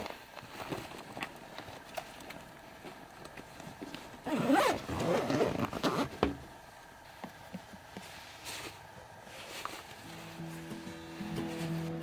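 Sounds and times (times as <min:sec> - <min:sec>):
backpack zipper pulled: 0:04.3 - 0:06.1.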